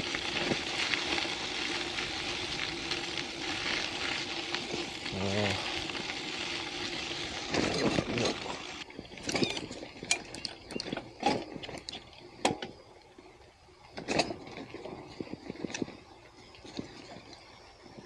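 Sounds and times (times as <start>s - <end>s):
bicycle tyres crunching on gravel: 0.0s - 18.0s
bike rattling over bumpy ground: 0.0s - 18.0s.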